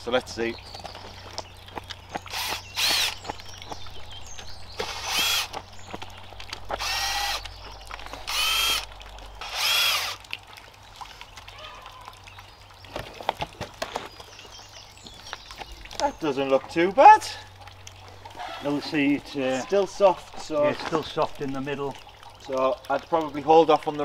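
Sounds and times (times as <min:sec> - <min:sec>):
cordless drill motor whine: 0:02.3 - 0:03.2, 0:04.8 - 0:05.5, 0:06.8 - 0:07.4, 0:08.3 - 0:08.8, 0:09.4 - 0:10.2.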